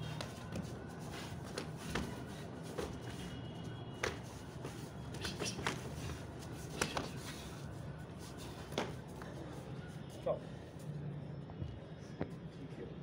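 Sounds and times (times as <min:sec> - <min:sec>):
feet shuffling: 0:00.0 - 0:03.4.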